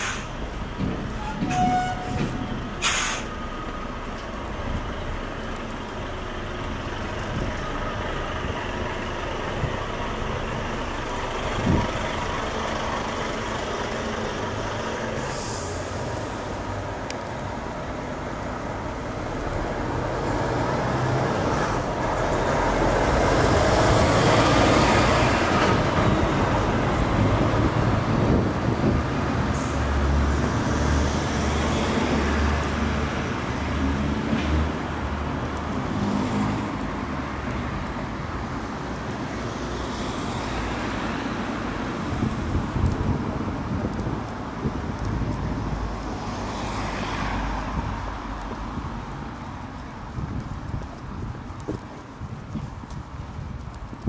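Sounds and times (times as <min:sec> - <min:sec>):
short hiss: 0:00.0 - 0:00.4, 0:02.8 - 0:03.4
lorry diesel engine: 0:00.0 - 0:46.2
traffic noise: 0:00.0 - 0:54.0.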